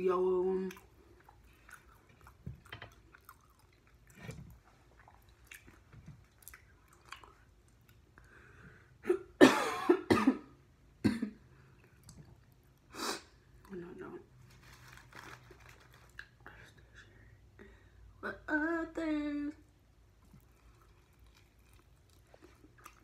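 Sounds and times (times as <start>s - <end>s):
chewing sounds: 0.7s - 8.1s, 20.2s - 23.0s
person coughing: 9.0s - 11.4s.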